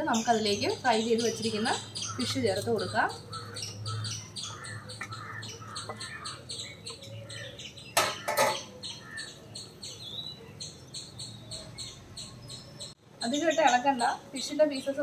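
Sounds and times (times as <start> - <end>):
utensils knocking on cooking pan: 8.0 - 8.6.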